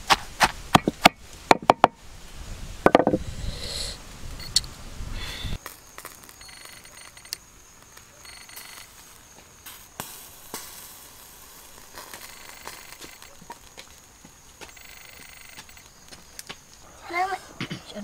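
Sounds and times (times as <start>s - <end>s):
charcoal embers crackling: 4.0s - 17.4s
sharp ticks and pops: 5.6s - 16.8s.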